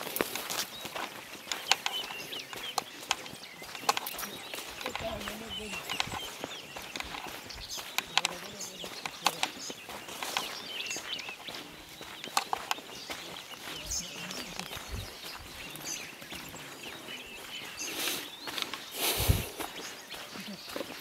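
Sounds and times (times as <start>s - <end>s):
clicks and rustles: 0.0s - 10.9s
footsteps on dirt path: 0.0s - 21.0s
small birds chirping: 0.0s - 21.0s.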